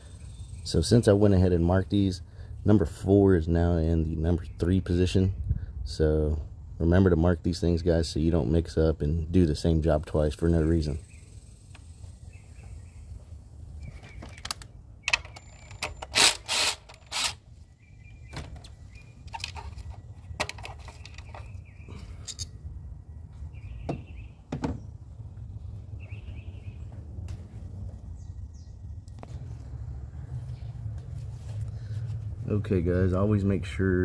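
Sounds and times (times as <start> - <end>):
birds chirping: 0.0 - 2.5, 9.5 - 16.1, 17.4 - 30.9
low background rumble: 16.2 - 34.0.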